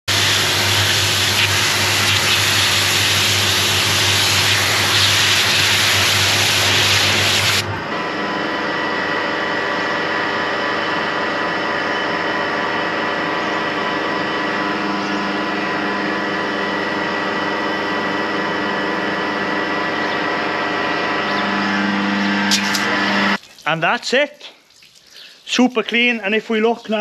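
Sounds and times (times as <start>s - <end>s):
pressure washer spray hissing: 0.1s - 7.6s
machine hum with steady tones: 0.1s - 23.4s.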